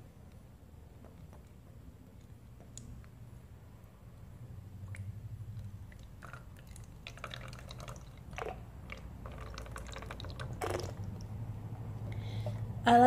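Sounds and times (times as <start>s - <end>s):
liquid trickling through funnel: 4.8s - 11.5s.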